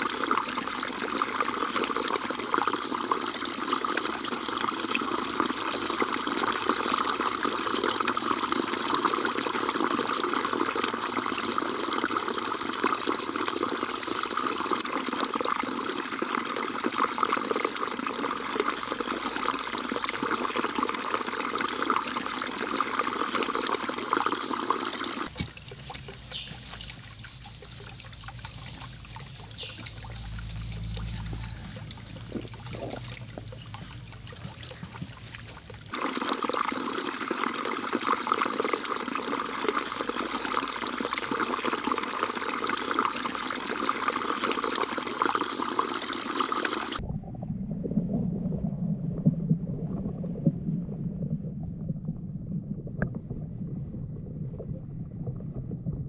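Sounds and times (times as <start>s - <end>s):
waterfall splashing into pond: 0.0s - 34.8s, 35.4s - 47.0s
thin high tone: 25.2s - 36.4s.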